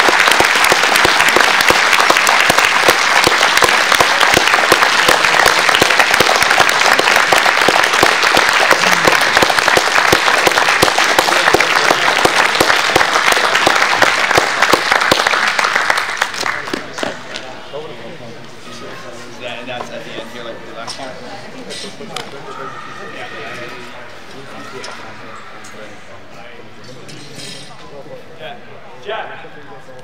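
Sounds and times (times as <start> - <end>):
audience applauding: 0.0 - 17.1.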